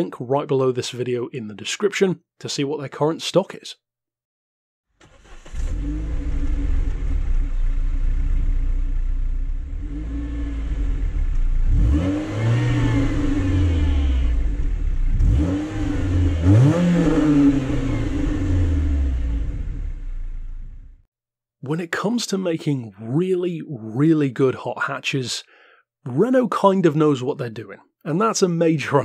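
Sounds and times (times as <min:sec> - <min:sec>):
car engine idling and revving: 0:05.0 - 0:21.0.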